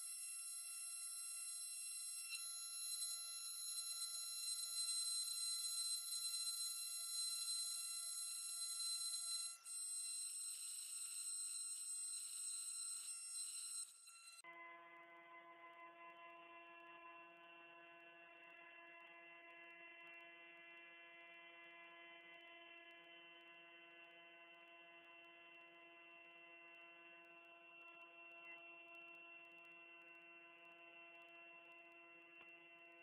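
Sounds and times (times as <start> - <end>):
milling machine whine: 0.0 - 14.4.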